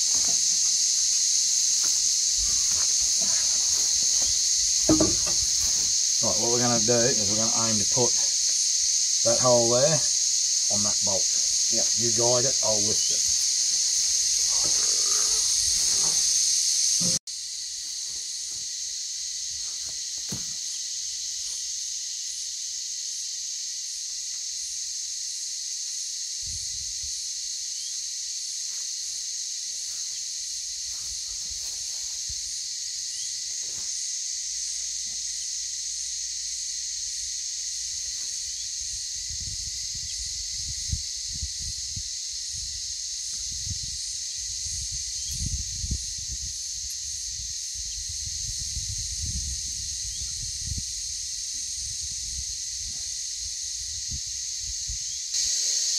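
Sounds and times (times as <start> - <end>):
insects droning: 0.0 - 55.9
short knocks on metal panel: 4.8 - 5.9.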